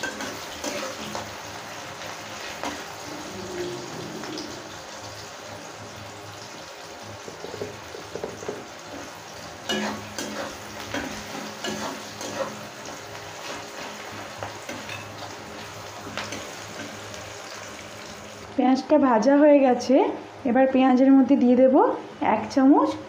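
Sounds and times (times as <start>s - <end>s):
onions sizzling in oil: 0.0s - 19.3s
metal spatula scraping pan: 9.7s - 12.6s.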